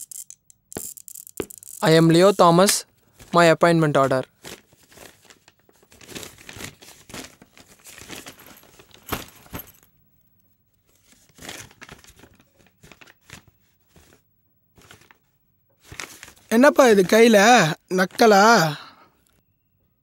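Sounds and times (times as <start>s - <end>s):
paper rustling and crinkling: 3.0s - 9.8s, 10.8s - 14.2s, 14.8s - 17.3s.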